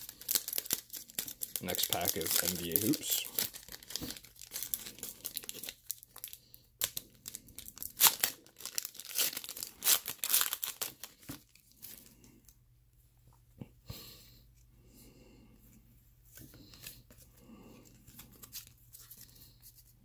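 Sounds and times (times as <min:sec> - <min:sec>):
foil wrapper tearing and crinkling: 0:00.0 - 0:12.0
handling of cards: 0:00.2 - 0:05.8, 0:16.3 - 0:20.0.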